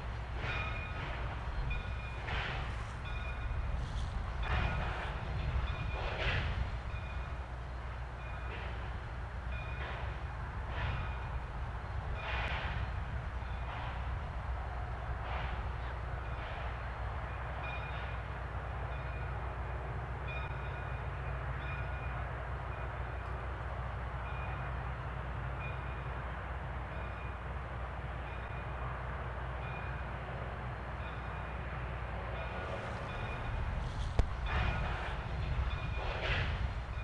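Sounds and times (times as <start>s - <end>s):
steam locomotive venting steam: 0.0s - 37.0s.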